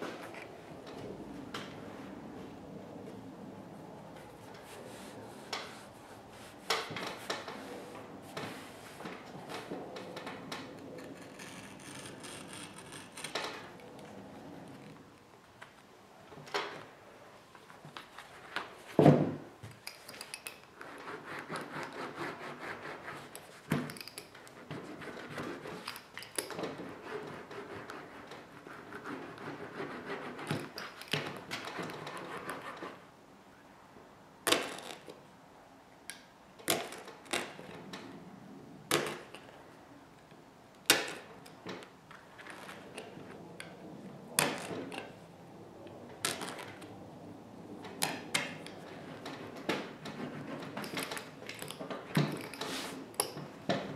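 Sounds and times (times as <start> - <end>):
hand roller rubbing and scraping: 4.0 - 10.3, 24.4 - 33.1, 48.4 - 53.9.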